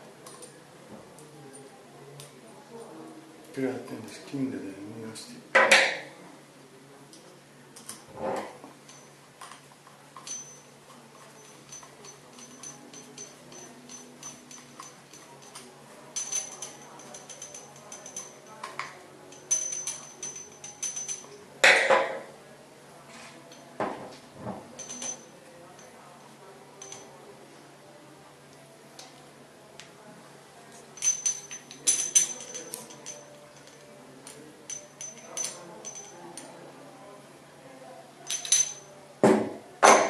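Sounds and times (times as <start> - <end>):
metal parts clinking together: 8.9 - 22.0, 24.8 - 26.0, 26.8 - 27.1, 30.7 - 36.5, 38.3 - 39.0.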